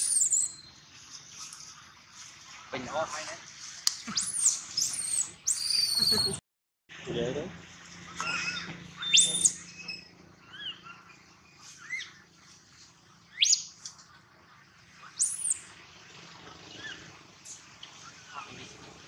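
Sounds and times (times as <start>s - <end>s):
baby monkey squealing: 0.0s - 0.7s, 4.1s - 6.4s, 8.2s - 10.8s, 15.2s - 15.6s.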